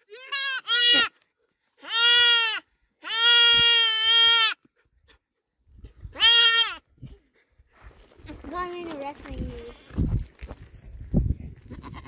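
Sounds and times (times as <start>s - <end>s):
goat kid bleating: 0.0s - 4.7s, 6.1s - 6.9s, 11.6s - 12.0s.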